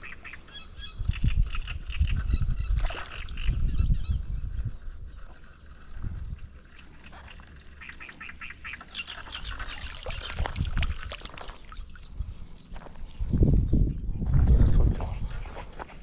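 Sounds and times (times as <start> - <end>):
water splashing and dripping: 9.0 - 12.0.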